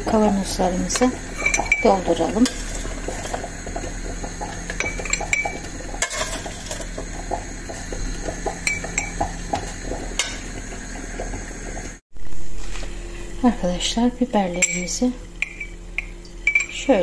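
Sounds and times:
metal spoon clinking on glass jar: 14.6 - 16.8.

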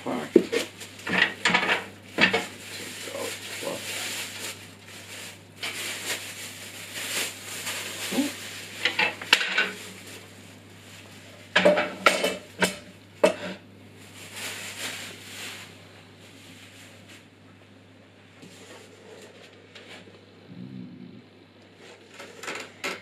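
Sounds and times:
plastic packaging rustling: 0.4 - 11.7, 14.0 - 17.3.

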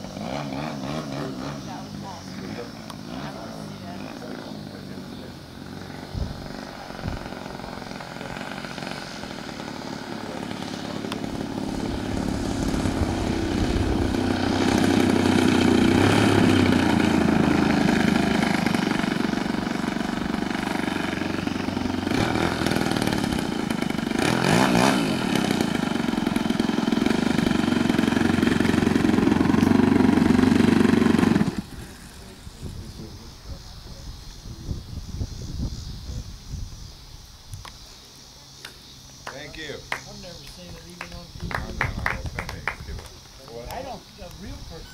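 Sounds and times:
model plane engine running: 0.0 - 34.0.

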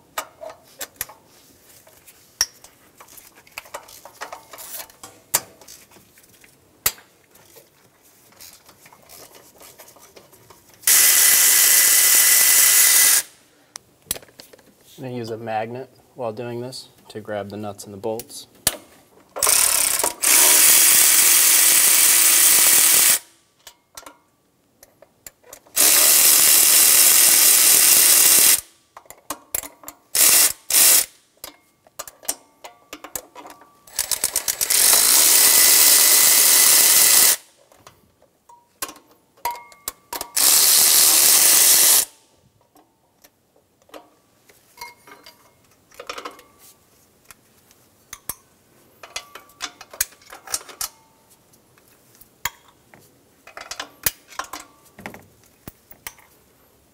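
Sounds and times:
cordless ratchet spinning: 10.9 - 13.3, 19.4 - 23.2, 25.8 - 28.7, 30.2 - 31.1, 33.9 - 37.4, 40.4 - 42.1.

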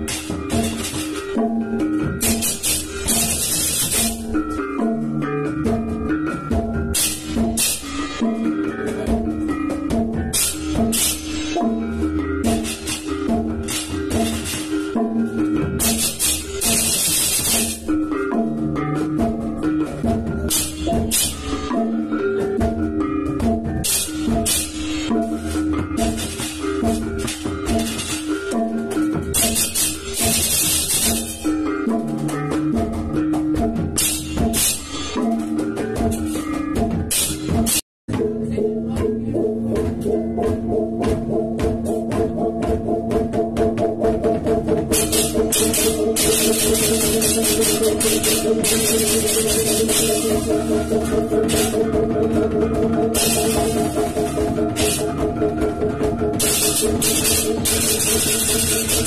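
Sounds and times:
cymbals clashing: 0.0 - 37.8, 44.8 - 59.0
hand drumming: 0.0 - 59.0
gongs ringing: 44.9 - 59.0.

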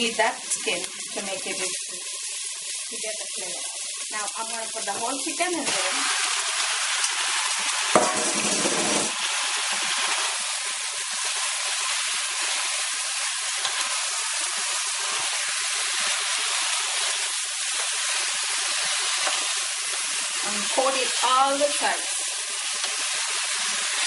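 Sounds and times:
chicken sizzling in hot oil: 0.0 - 24.0.

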